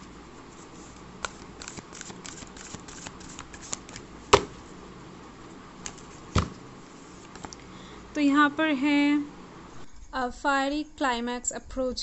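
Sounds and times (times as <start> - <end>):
cards being shuffled: 0.6 - 4.6, 5.8 - 6.6.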